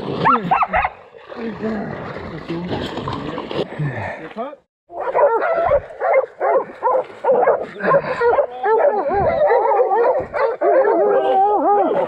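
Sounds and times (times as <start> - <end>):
dogs baying and barking: 0.2 - 1.0, 4.9 - 12.0.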